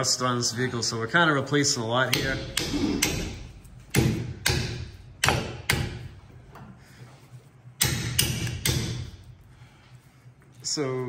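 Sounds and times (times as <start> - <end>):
hammer striking metal bolt: 2.1 - 6.1, 7.8 - 9.1.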